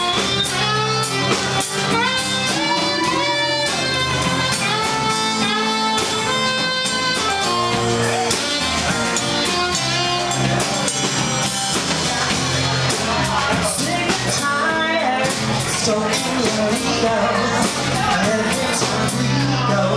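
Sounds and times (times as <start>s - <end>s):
saxophone solo: 0.0s - 11.8s
strummed guitar: 0.0s - 19.9s.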